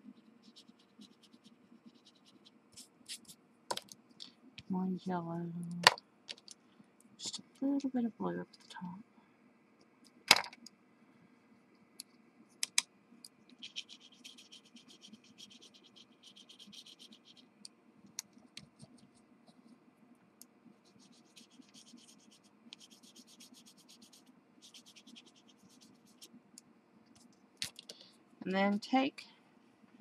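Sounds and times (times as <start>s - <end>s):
colour stick scratching on paper: 0.0s - 3.4s, 13.5s - 17.6s, 18.6s - 19.7s, 20.8s - 26.3s.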